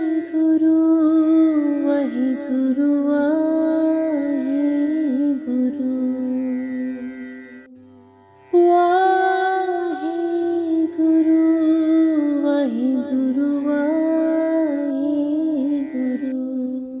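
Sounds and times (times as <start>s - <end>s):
woman singing wordless melody: 0.0s - 7.9s, 8.5s - 17.0s.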